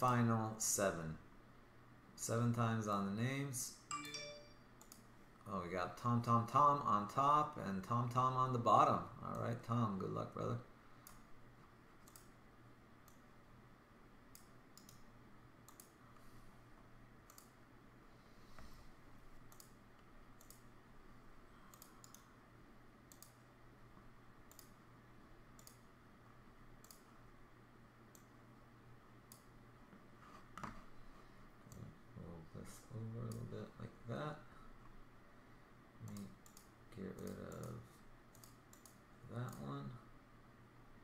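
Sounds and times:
low steady room hum: 0:00.0 - 0:41.0
computer mouse clicks: 0:04.8 - 0:05.1, 0:11.0 - 0:11.3, 0:12.0 - 0:12.4, 0:13.0 - 0:13.3, 0:14.3 - 0:16.3, 0:17.2 - 0:17.6, 0:19.4 - 0:20.7, 0:21.7 - 0:22.4, 0:23.1 - 0:23.5, 0:24.4 - 0:24.8, 0:25.5 - 0:25.9, 0:26.8 - 0:27.1, 0:28.1 - 0:28.4, 0:29.3 - 0:29.5, 0:33.2 - 0:33.5, 0:36.0 - 0:39.7.

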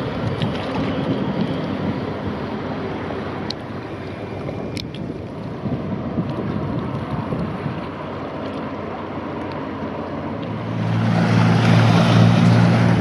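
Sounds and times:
wind on microphone: 0:00.0 - 0:08.2
open water washing: 0:00.0 - 0:13.0.

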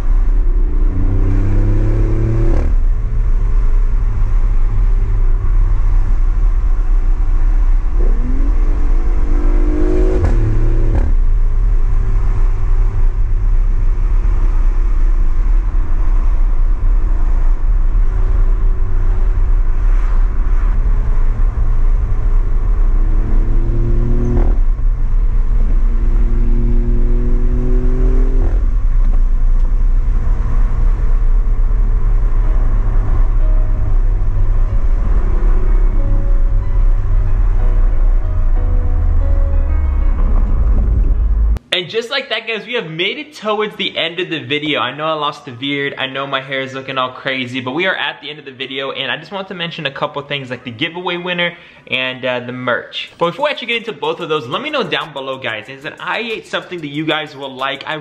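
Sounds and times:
car engine revving with gear changes: 0:00.0 - 0:38.0.

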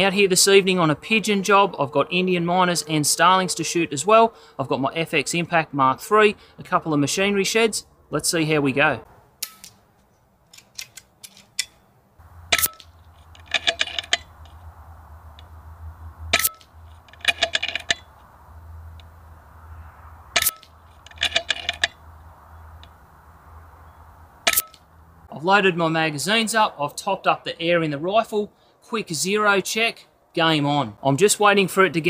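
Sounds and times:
metallic clicks of rifle action: 0:10.5 - 0:11.8, 0:12.5 - 0:14.6, 0:16.3 - 0:18.1, 0:20.4 - 0:22.0, 0:24.5 - 0:24.8.

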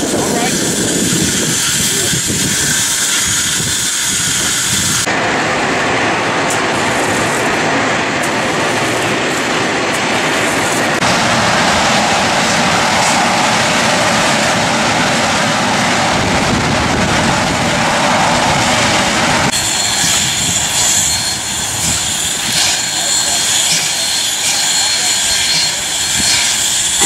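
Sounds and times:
steam hissing from locomotive: 0:00.0 - 0:27.0.

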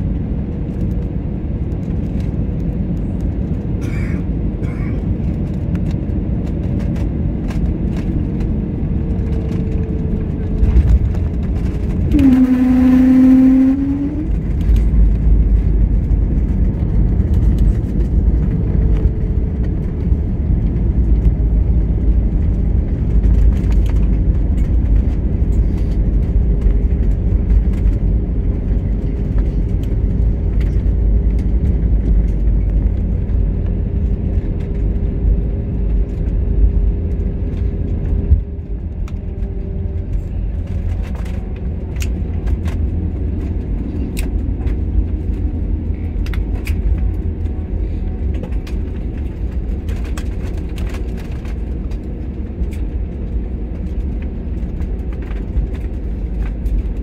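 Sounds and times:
low rumble of wheels on runway: 0:00.0 - 0:57.0
jet engine reverse thrust: 0:04.6 - 0:57.0
brief humming tone: 0:12.1 - 0:14.4.

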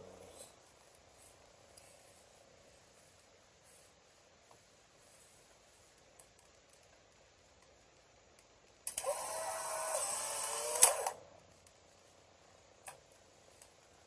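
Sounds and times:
camera shutter click: 0:08.9 - 0:11.2
film ejection motor whine: 0:08.9 - 0:11.2.

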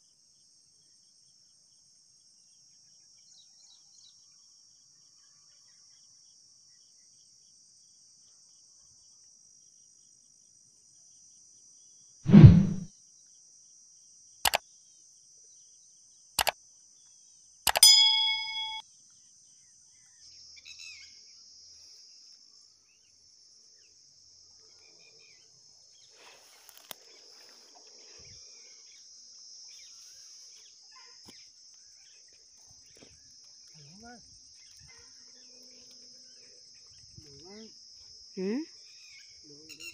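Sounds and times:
loud low thump: 0:12.3 - 0:12.9
sharp clicks: 0:17.7 - 0:18.8
short ringing ding: 0:17.7 - 0:18.8
insects buzzing: 0:19.2 - 0:39.9.

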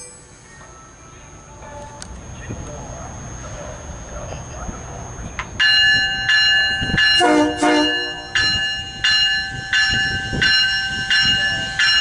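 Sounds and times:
train bell ringing: 0:00.0 - 0:02.2, 0:05.6 - 0:12.0
train rumbling slowly: 0:00.0 - 0:12.0
train horn blasts: 0:07.1 - 0:08.4.

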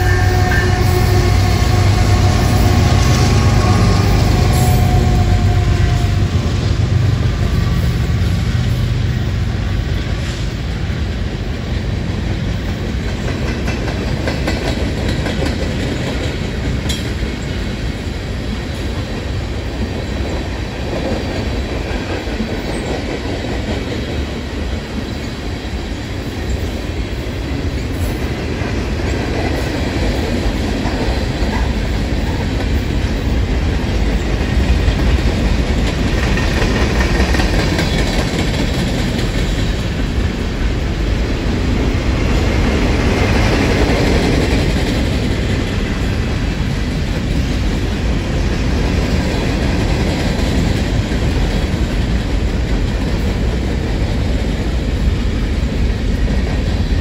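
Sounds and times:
train wheels clattering over rail joints: 0:09.8 - 0:18.1, 0:26.3 - 0:57.0.

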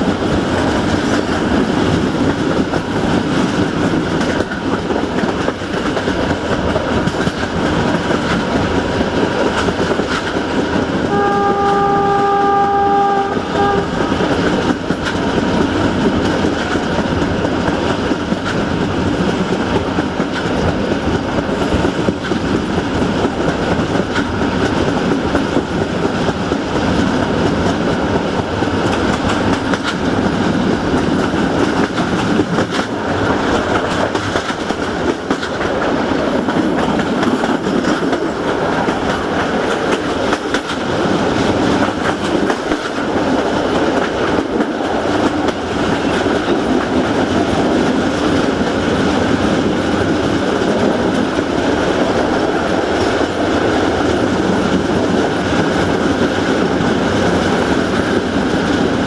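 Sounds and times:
train wheels clattering on rails: 0:00.0 - 0:59.0
locomotive horn: 0:11.1 - 0:14.2.

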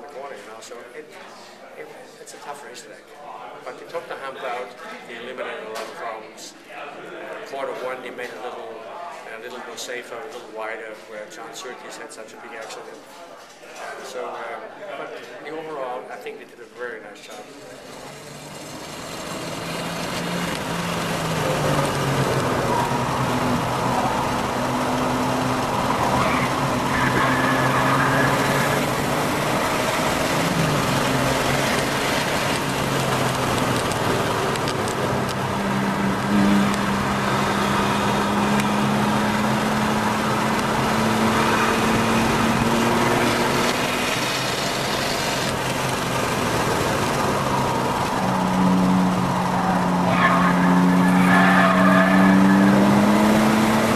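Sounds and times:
car engine revving: 0:17.7 - 0:53.9.

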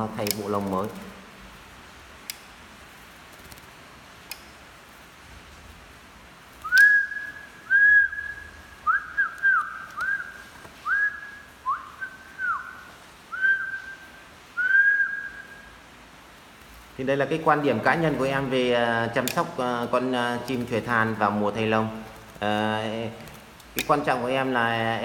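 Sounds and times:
whistled notes: 0:06.6 - 0:15.8.

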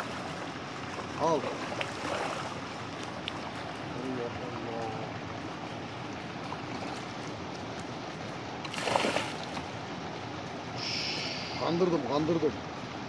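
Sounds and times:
running water: 0:00.0 - 0:13.0
sharp splash: 0:08.7 - 0:09.7.

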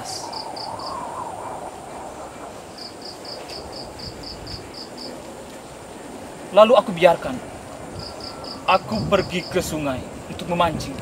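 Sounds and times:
insect chirping: 0:00.0 - 0:05.9, 0:07.5 - 0:10.4
low hiss: 0:00.0 - 0:11.0.

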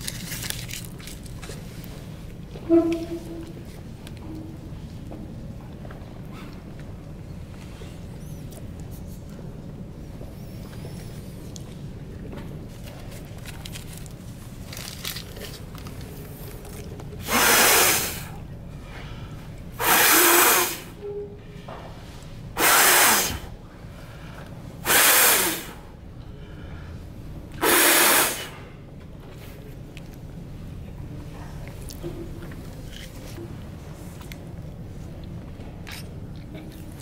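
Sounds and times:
person blowing into hands: 0:17.2 - 0:18.3, 0:19.8 - 0:21.0, 0:22.6 - 0:23.5, 0:24.8 - 0:25.8, 0:27.6 - 0:28.6.

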